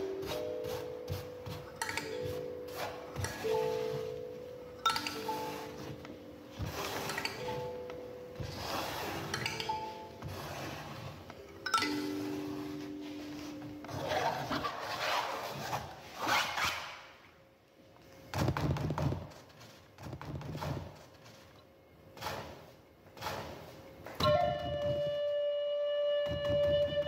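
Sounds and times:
held flute-like note: 0:24.2 - 0:27.0.

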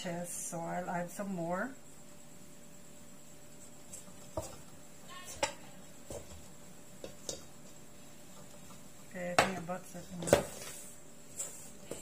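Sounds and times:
faint steady hum: 0:00.0 - 0:12.0
dough knocking in a steel bowl: 0:07.0 - 0:07.5.

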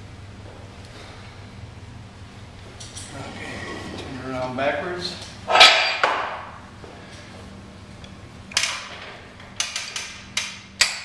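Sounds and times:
hammer striking metal: 0:05.5 - 0:06.4.

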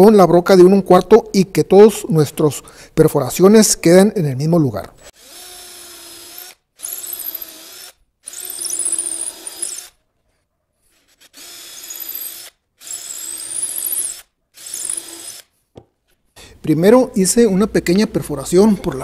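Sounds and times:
cordless drill boring into wood: 0:05.1 - 0:10.0, 0:10.9 - 0:15.6.

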